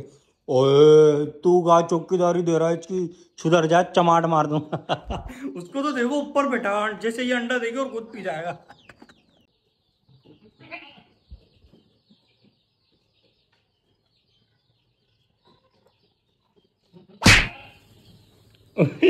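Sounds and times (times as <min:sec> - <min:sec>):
goat bleating: 0:10.6 - 0:11.1, 0:17.0 - 0:17.8
goat falling call: 0:17.2 - 0:17.8.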